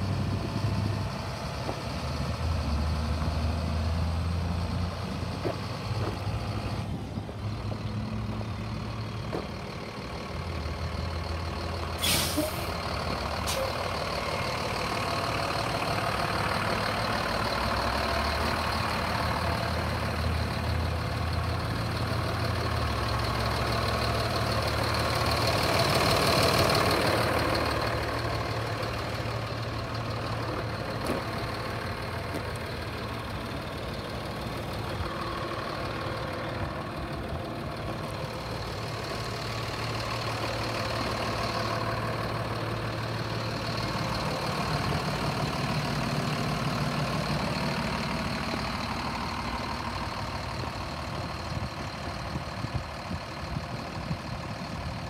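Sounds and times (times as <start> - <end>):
truck diesel engine running: 0.0 - 55.0
air hiss: 12.0 - 12.8.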